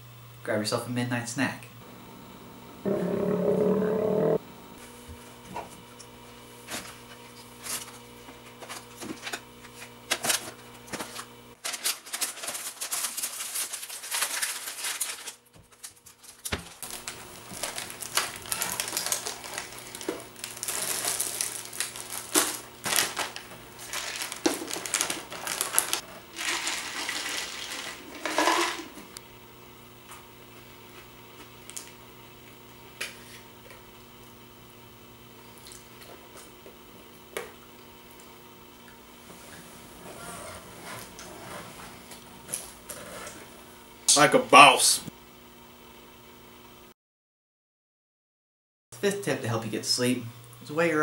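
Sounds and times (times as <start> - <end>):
plastic wrappers crinkling: 11.6 - 28.0.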